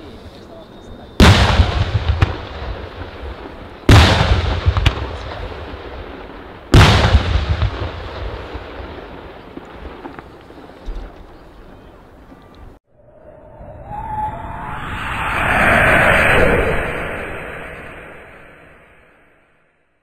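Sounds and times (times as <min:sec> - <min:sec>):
firework booms with rolling echo: 0:01.2 - 0:11.2
small firework cracks: 0:01.2 - 0:11.3.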